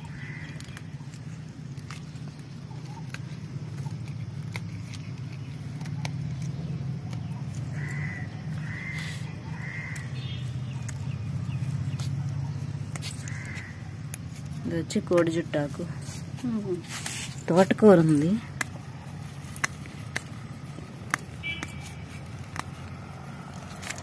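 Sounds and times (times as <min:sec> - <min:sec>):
leaves being picked clicks: 0:00.0 - 0:24.0
crow cawing: 0:00.1 - 0:00.8, 0:07.7 - 0:10.2, 0:13.2 - 0:14.0.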